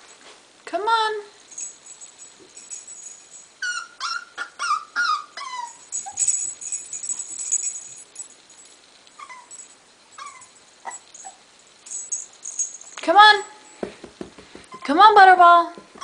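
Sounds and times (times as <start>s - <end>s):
puppy whining: 3.6s - 8.0s, 9.1s - 11.5s.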